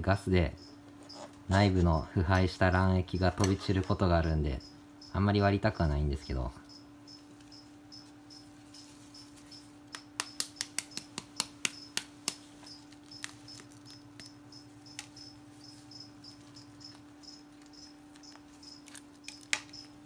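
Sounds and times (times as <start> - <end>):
faint steady hum: 0.0 - 20.0
high repeating chirp: 4.2 - 5.3, 6.2 - 9.7, 12.7 - 20.0.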